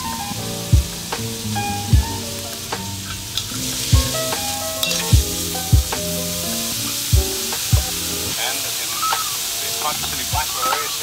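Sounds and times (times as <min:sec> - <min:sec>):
lo-fi hip-hop music: 0:00.0 - 0:11.0
vegetables sizzling in oil: 0:00.0 - 0:11.0
metal spatula stirring in wok: 0:03.0 - 0:07.7.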